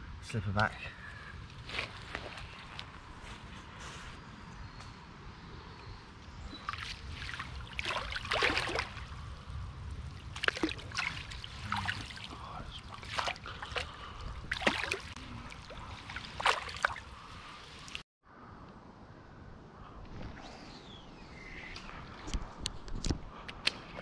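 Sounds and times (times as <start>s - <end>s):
water sloshing and splashing: 6.5s - 9.2s, 9.9s - 18.0s.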